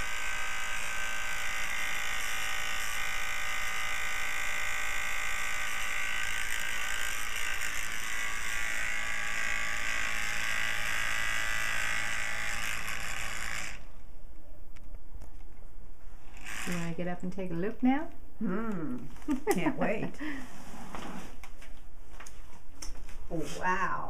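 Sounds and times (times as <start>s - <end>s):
electric fan motor buzzing: 0.0s - 14.1s, 16.2s - 20.4s.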